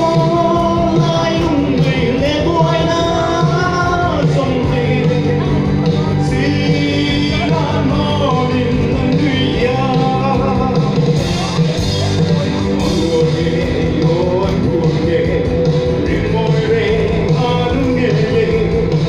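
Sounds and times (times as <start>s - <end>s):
amplified backing music: 0.0s - 19.0s
man singing into microphone: 0.0s - 19.0s.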